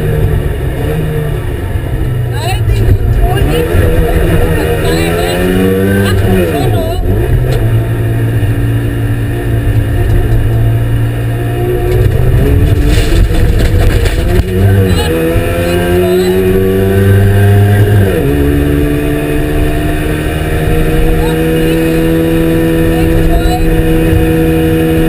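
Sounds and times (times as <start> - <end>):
two-stroke engine accelerating: 0.0 - 25.0
knocks and rattling: 11.9 - 15.5.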